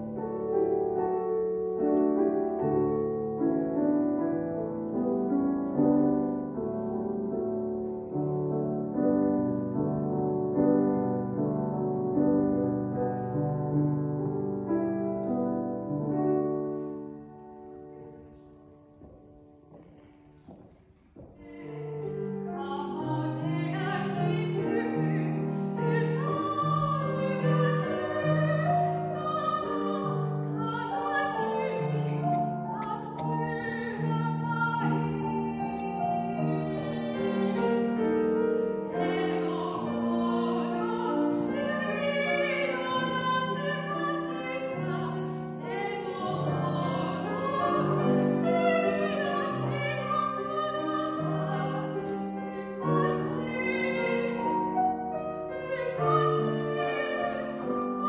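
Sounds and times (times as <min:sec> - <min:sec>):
grand piano: 0:00.0 - 0:58.0
woman singing operatically: 0:22.3 - 0:38.0, 0:38.9 - 0:54.4, 0:55.5 - 0:58.0.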